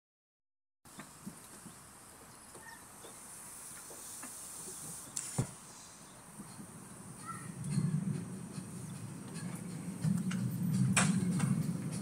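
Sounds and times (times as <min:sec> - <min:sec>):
light clicks of train: 0:00.9 - 0:12.0
train low rumble: 0:00.9 - 0:12.0
faint high hiss: 0:02.8 - 0:06.2.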